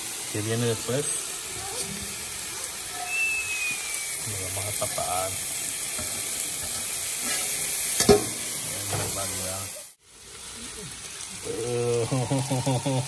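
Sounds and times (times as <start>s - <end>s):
food sizzling on a griddle: 0.0s - 13.0s
spatula scraping griddle: 6.0s - 9.4s
metal lid clink: 8.0s - 9.2s.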